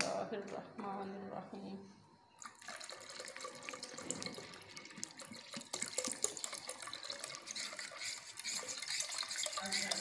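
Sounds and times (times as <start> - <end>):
water pouring into a pot: 2.4 - 10.0.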